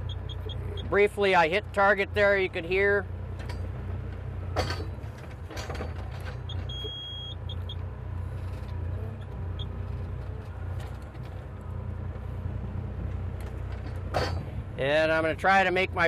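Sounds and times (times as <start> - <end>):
short beeps: 0.0 - 0.9, 6.5 - 7.8
excavator diesel engine running: 0.0 - 16.0.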